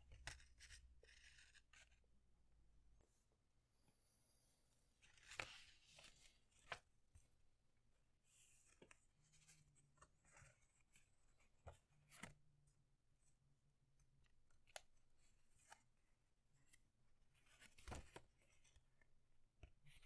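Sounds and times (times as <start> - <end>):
paper rustling and crinkling: 5.0 - 6.9, 17.4 - 18.6.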